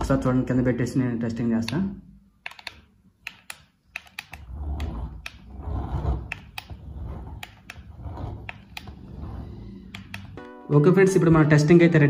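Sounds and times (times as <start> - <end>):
low rumble: 4.5 - 10.4.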